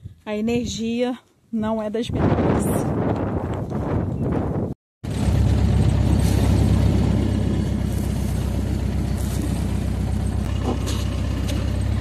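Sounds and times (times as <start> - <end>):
tyre and wind noise: 2.0 - 12.0
buggy engine droning: 5.0 - 12.0.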